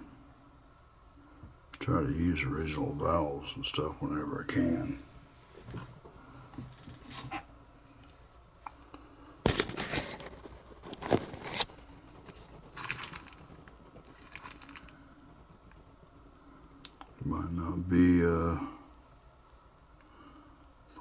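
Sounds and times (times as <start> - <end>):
scraping crinkling noises: 5.5 - 15.9.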